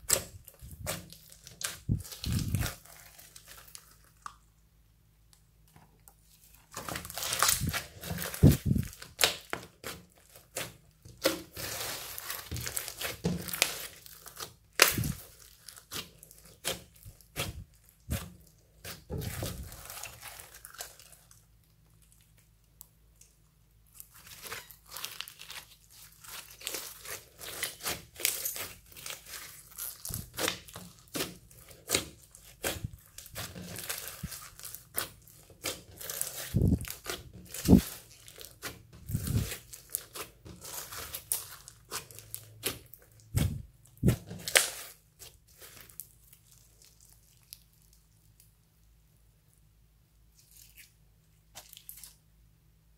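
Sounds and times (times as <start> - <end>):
slime crackling and popping: 0.0 - 4.5, 6.5 - 48.5.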